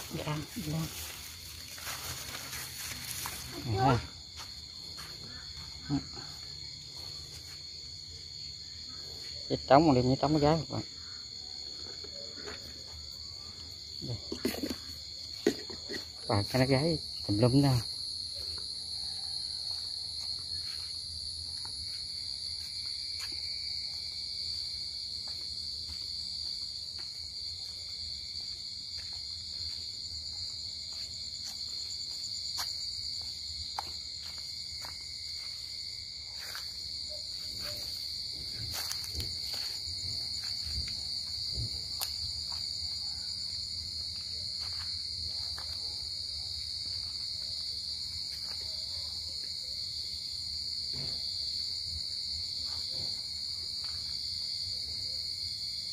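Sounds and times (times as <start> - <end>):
footsteps through undergrowth: 0.0 - 5.8, 28.4 - 42.7
crickets chirping: 0.0 - 55.9.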